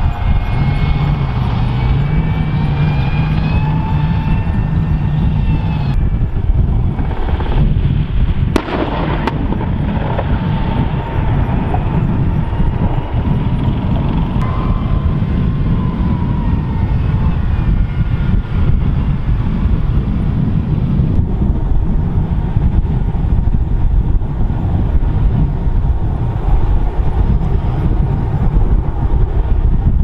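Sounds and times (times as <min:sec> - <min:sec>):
tank turbine engines whining: 0:00.0 - 0:30.0
sharp bangs: 0:06.9 - 0:16.4.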